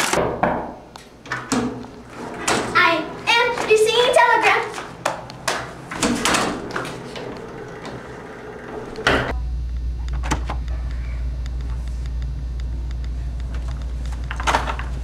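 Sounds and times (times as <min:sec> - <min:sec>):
steady low hum: 0:00.8 - 0:15.0
glass door push bar rattling: 0:01.2 - 0:03.8, 0:05.4 - 0:09.3.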